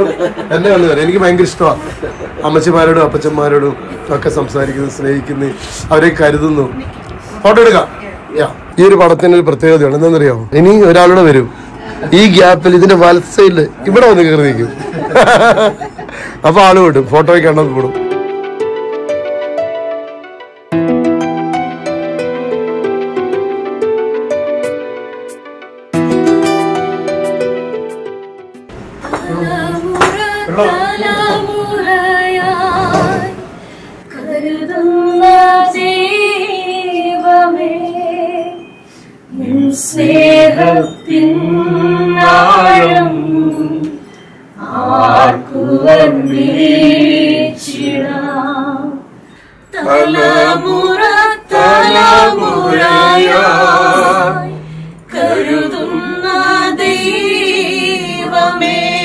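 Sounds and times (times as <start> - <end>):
breaths: 11.5 - 12.0, 16.1 - 16.4, 33.5 - 34.1, 38.8 - 39.3, 44.0 - 44.6, 49.2 - 49.7, 54.6 - 55.1
woman singing unaccompanied: 29.0 - 33.5, 34.1 - 38.7, 44.6 - 49.1, 49.7 - 59.0.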